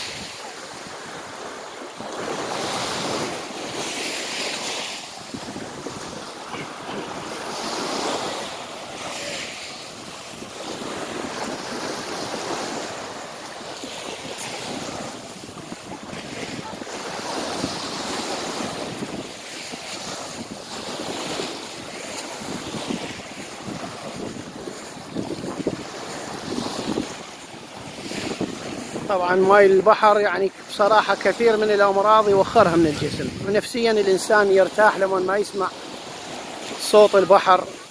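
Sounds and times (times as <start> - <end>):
small waves breaking on pebbles: 0.0 - 37.9
wind buffeting the microphone: 2.0 - 29.6, 32.0 - 34.0.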